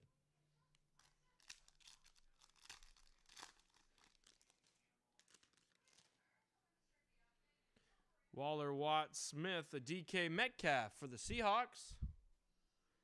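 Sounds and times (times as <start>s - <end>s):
wrapper crinkling and ripping: 0.9s - 6.2s.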